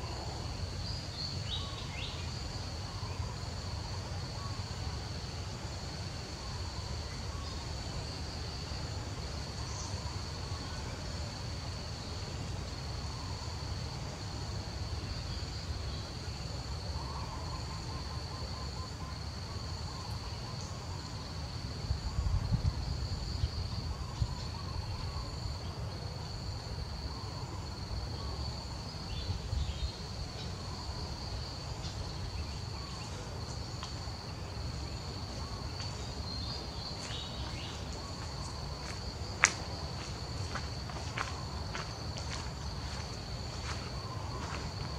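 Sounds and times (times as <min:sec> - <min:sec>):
high-pitched insect chorus: 0:00.0 - 0:44.9.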